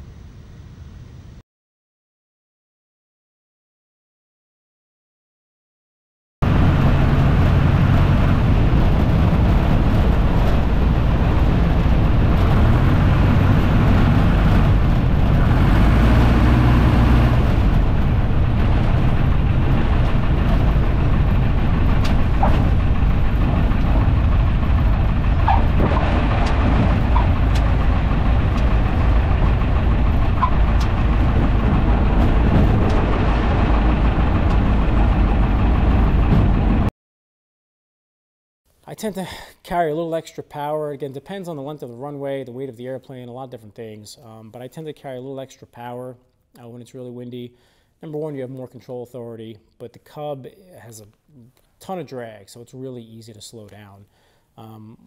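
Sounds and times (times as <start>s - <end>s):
light aircraft engine and propeller: 6.4s - 36.9s
wind noise: 6.4s - 36.9s.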